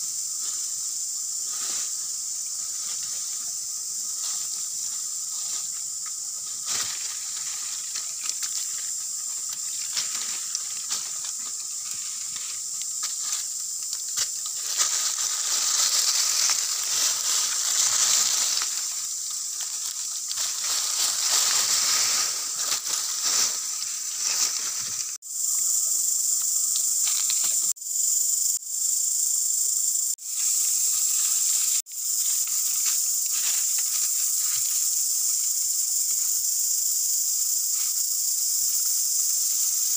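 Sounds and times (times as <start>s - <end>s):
high-pitched insect chorus: 0.0s - 39.9s
dry leaves rustling: 0.4s - 25.9s, 26.8s - 27.8s, 30.2s - 39.9s.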